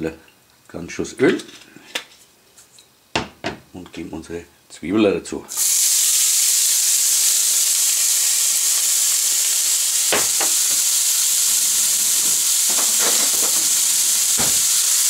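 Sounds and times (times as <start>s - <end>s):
onion sizzling in hot oil: 5.5s - 15.0s.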